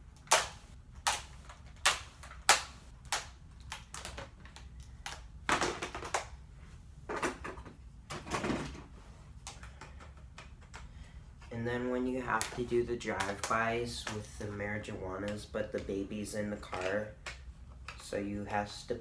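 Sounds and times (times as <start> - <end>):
plastic toys clacking and knocking: 0.2 - 6.4, 16.6 - 18.5.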